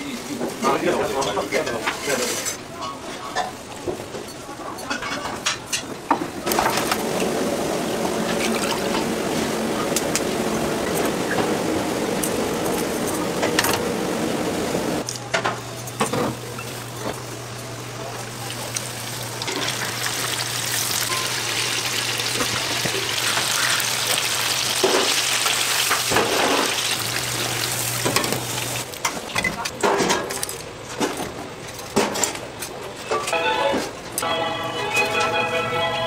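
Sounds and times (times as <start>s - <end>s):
chicken deep-frying in oil: 6.4s - 12.6s, 16.3s - 29.4s
low steady hum: 6.5s - 22.5s.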